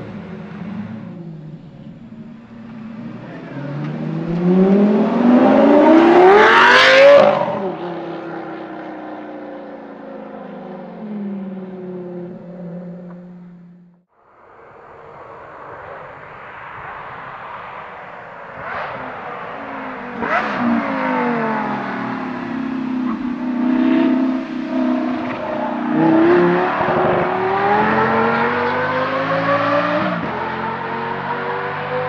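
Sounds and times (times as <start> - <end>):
sports car exhaust roaring: 15.1 - 31.5.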